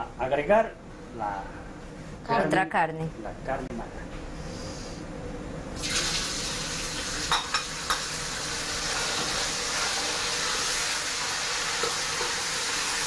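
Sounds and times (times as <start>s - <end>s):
meat sizzling in oil: 5.8s - 13.0s.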